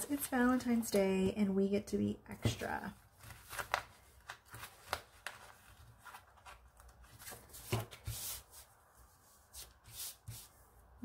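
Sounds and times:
paper rustling: 2.4s - 10.6s.

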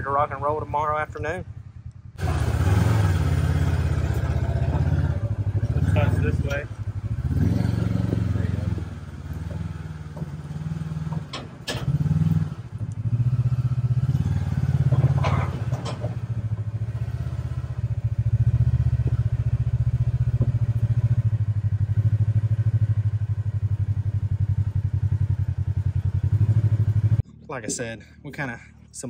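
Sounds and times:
utility vehicle engine running: 0.0s - 29.0s
sharp knocks and clunks: 7.7s - 12.6s, 14.0s - 16.9s, 18.9s - 21.4s.

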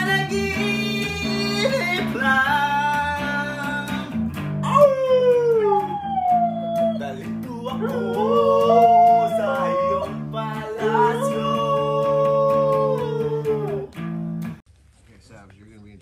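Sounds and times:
electric guitar chords: 0.0s - 14.6s
dog howling: 4.6s - 14.0s.

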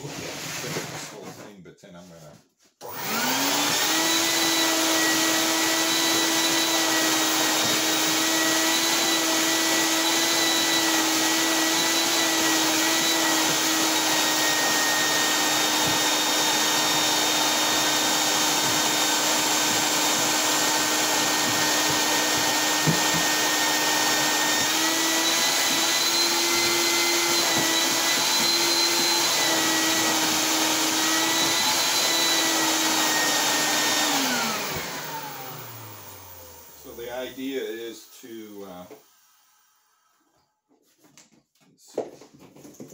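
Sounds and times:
shop vacuum running: 2.8s - 40.2s.

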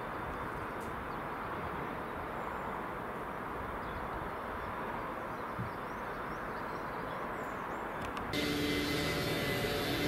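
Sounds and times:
distant locomotive rumble and hiss: 7.7s - 10.0s.

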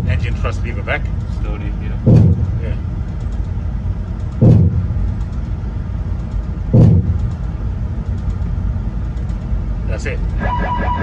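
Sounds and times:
low engine rumble: 0.0s - 11.0s
heavy thumps: 2.0s - 2.8s, 4.3s - 5.2s, 6.6s - 7.5s.

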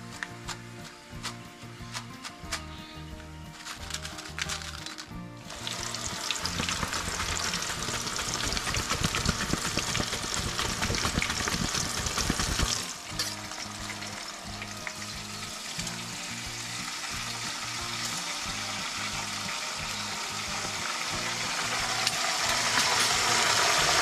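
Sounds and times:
food deep-frying in oil: 5.5s - 24.0s.

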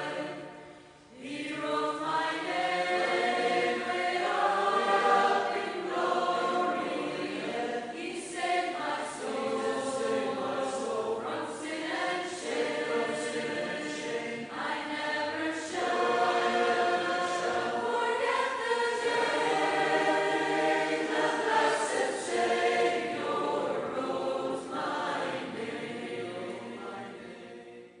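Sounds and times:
choir singing: 0.0s - 28.0s.

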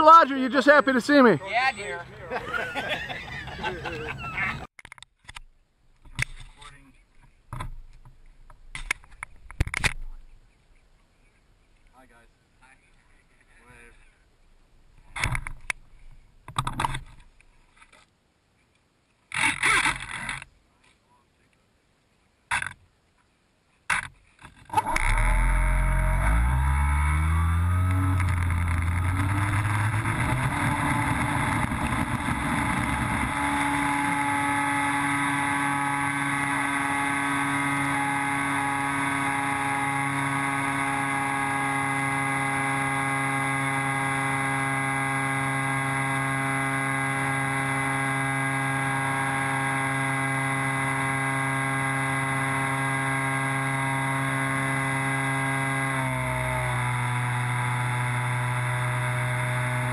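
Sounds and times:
electric motor and propeller whine: 24.7s - 59.9s.

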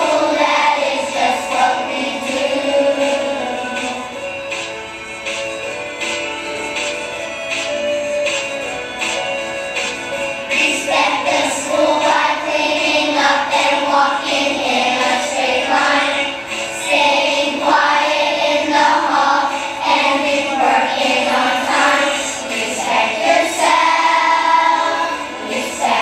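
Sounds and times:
children singing: 0.0s - 4.3s, 10.5s - 26.0s
musical accompaniment: 0.0s - 26.0s.

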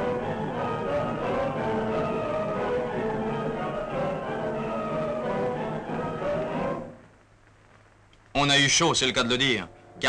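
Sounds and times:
orchestral music with held notes: 0.0s - 7.0s.

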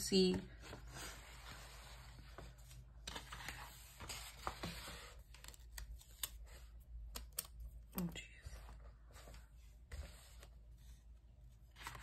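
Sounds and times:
paper pages rustling: 0.6s - 7.5s, 11.6s - 12.0s.

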